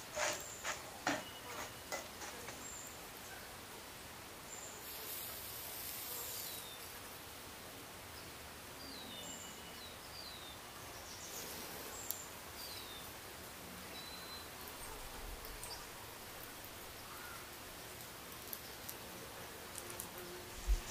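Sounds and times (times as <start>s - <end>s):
small birds chirping: 4.4s - 7.1s, 8.1s - 20.9s.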